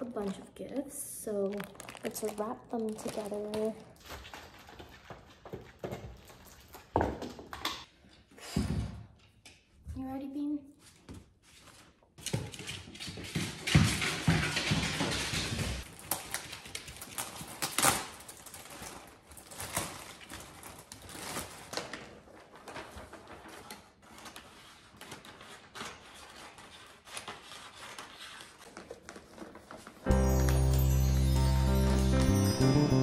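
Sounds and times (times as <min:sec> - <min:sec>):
wrapping paper rustling: 0:01.2 - 0:05.4, 0:15.8 - 0:32.2.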